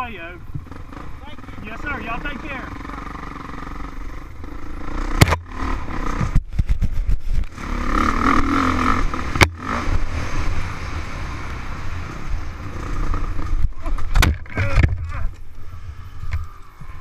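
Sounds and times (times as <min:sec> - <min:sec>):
dirt bike engine running: 0:00.0 - 0:14.8.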